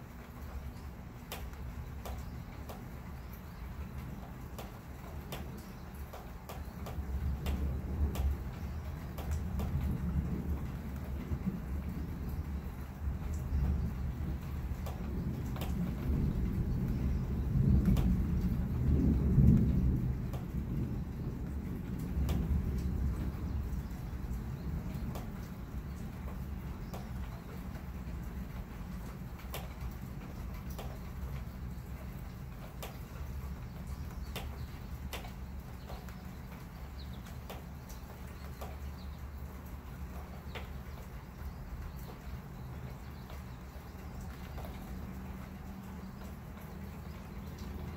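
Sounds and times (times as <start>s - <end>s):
thunder rumbling: 6.8s - 38.8s
faint ticks: 33.8s - 39.1s.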